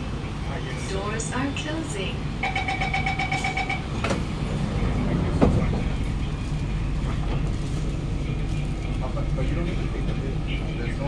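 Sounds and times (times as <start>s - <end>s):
train doors shutting: 2.4s - 8.2s.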